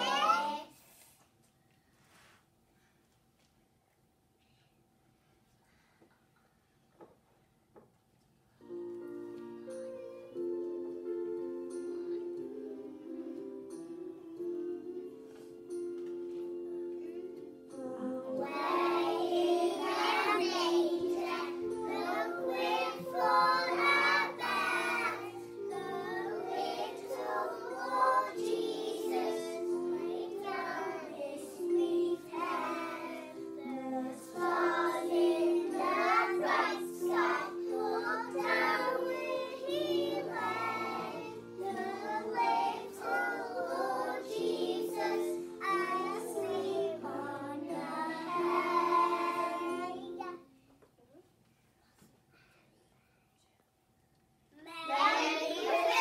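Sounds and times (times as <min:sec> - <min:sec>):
children singing: 0:00.0 - 0:00.7, 0:11.6 - 0:15.8, 0:16.8 - 0:50.4, 0:54.8 - 0:56.0
instrumental accompaniment: 0:08.6 - 0:50.4.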